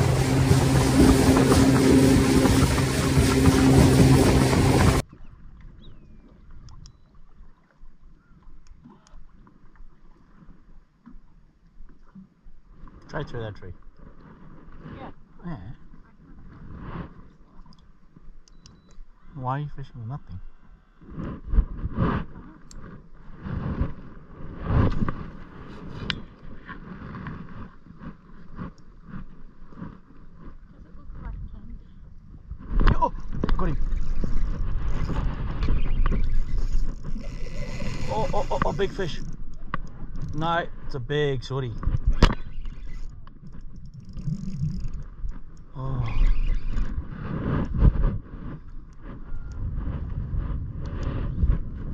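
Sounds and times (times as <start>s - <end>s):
boat motor running: 0.0s - 5.0s, 32.9s - 47.0s
wind buffeting microphone: 0.0s - 5.0s, 31.0s - 41.0s, 46.1s - 51.9s
hull moving over water: 0.0s - 18.9s, 21.0s - 51.9s
faint small clicks: 8.4s - 9.8s, 17.6s - 19.1s.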